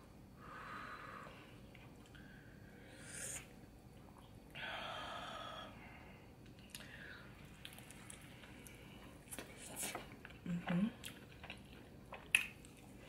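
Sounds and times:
breathy nasal exhale: 0:02.2 - 0:03.5.

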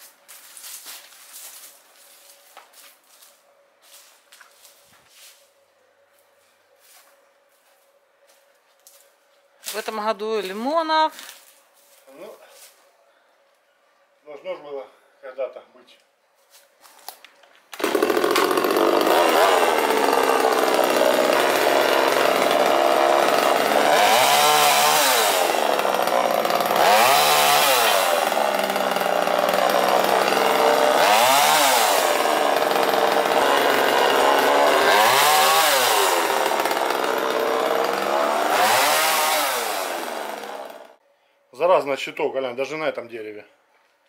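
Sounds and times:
tree branches being cut: 0:00.0 - 0:05.5, 0:16.5 - 0:41.0
chainsaw revving: 0:17.8 - 0:41.0.

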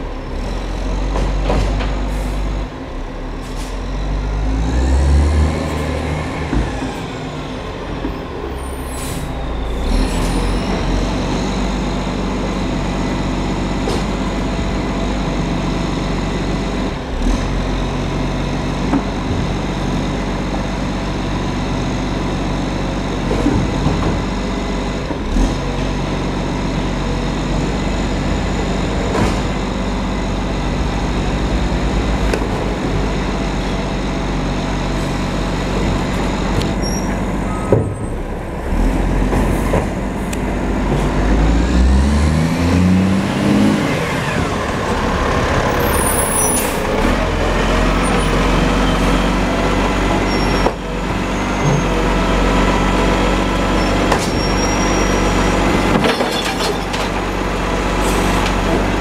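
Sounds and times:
diesel truck engine: 0:00.0 - 0:59.0
air brake hiss: 0:08.7 - 0:09.4.

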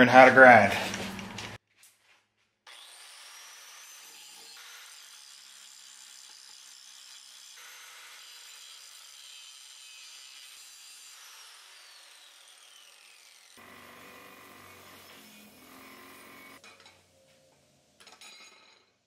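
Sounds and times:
grinder winding down whine: 0:02.7 - 0:05.6, 0:11.2 - 0:16.6
angle grinder grinding metal: 0:02.7 - 0:18.7.

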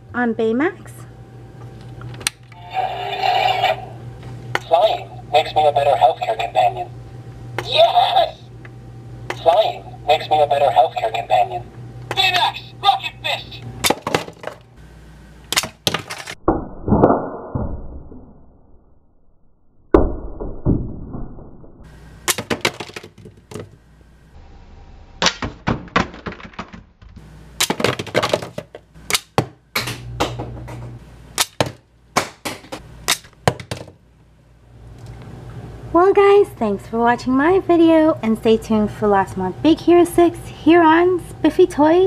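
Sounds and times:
toy electronic sound effects: 0:02.6 - 0:04.0.

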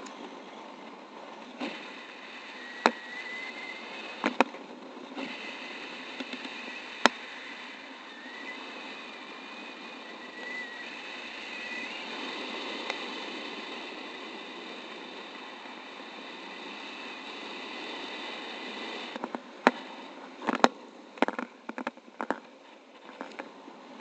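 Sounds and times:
wind rushing over camera: 0:00.0 - 0:24.0
faint high whistle: 0:02.4 - 0:04.2, 0:06.6 - 0:12.1.

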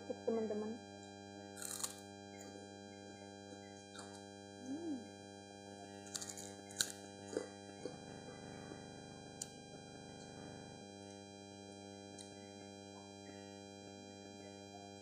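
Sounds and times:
faint steady hum: 0:00.0 - 0:15.0
cracker crunching being chewed: 0:01.6 - 0:02.0, 0:06.0 - 0:08.0.

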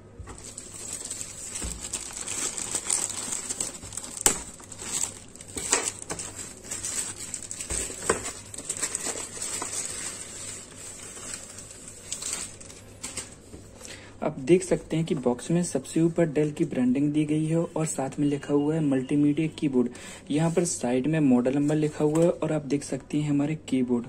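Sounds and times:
plastic wrapping crinkling: 0:00.1 - 0:13.9.

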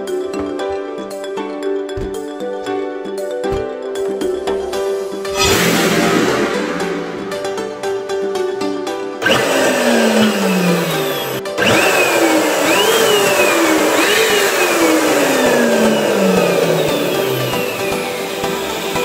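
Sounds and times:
background music: 0:00.0 - 0:19.0
electric balloon pump whine: 0:05.3 - 0:08.3, 0:09.2 - 0:19.0.

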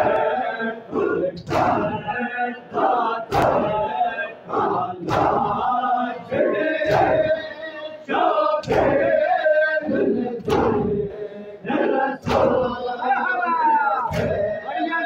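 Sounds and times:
crowd of men chanting: 0:00.0 - 0:15.0
hands slapping chests: 0:01.4 - 0:02.0, 0:03.3 - 0:03.8, 0:05.0 - 0:05.6, 0:06.9 - 0:07.2, 0:08.6 - 0:09.0, 0:10.4 - 0:10.9, 0:14.1 - 0:14.4.

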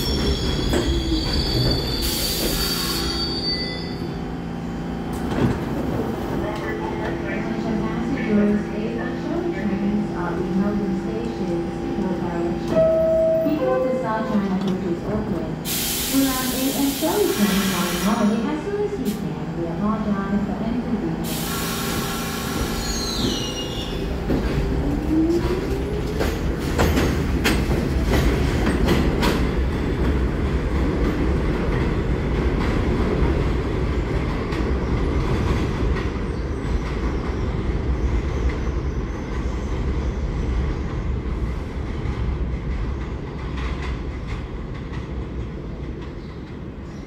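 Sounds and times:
train rumble: 0:04.0 - 0:47.0
train wheels clicking over rail joints: 0:24.2 - 0:33.0.

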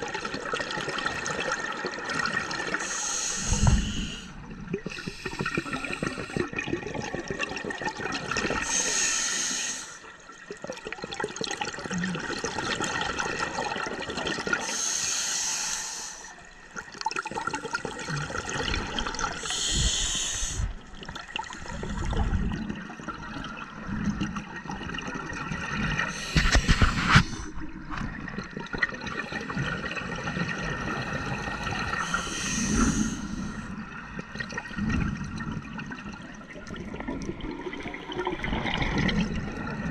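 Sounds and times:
exhaled air bubbling: 0:00.0 - 0:09.5, 0:16.7 - 0:39.9
regulator breathing hiss: 0:02.8 - 0:04.3, 0:08.6 - 0:10.0, 0:14.7 - 0:16.4, 0:19.4 - 0:20.8, 0:32.0 - 0:33.6.

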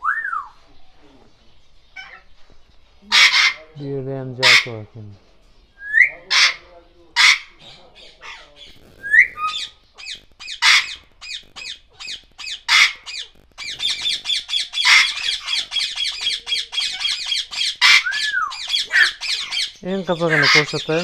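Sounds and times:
parrots chattering: 0:01.8 - 0:02.4, 0:03.0 - 0:21.0
parrots squawking: 0:02.0 - 0:02.3, 0:03.0 - 0:04.9, 0:05.8 - 0:21.0
parrot whistle: 0:09.0 - 0:19.6.

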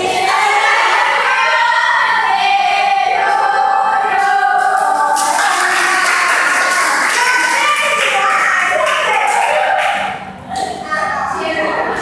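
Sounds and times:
group of women singing a celebration song: 0:00.0 - 0:08.1
hand clapping: 0:04.2 - 0:10.8.

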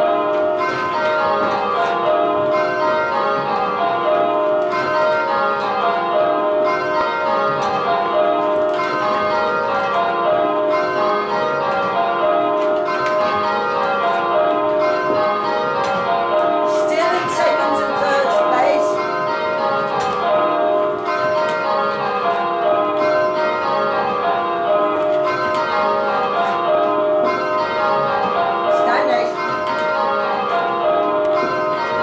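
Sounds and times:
church bells change ringing: 0:00.0 - 0:32.0.

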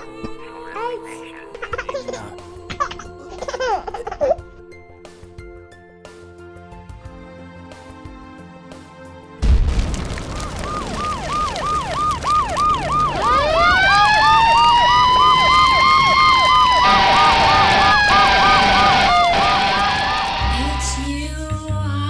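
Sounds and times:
explosion blast: 0:09.4 - 0:20.7
yelp siren: 0:10.3 - 0:20.9
wail siren: 0:10.3 - 0:21.0.

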